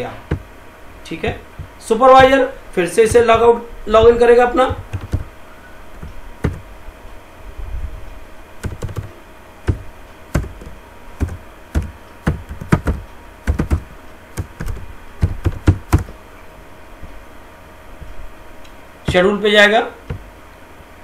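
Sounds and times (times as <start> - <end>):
low steady hum: 0.0 - 21.0
keyboard typing: 4.6 - 5.3, 6.0 - 6.7, 8.6 - 16.2.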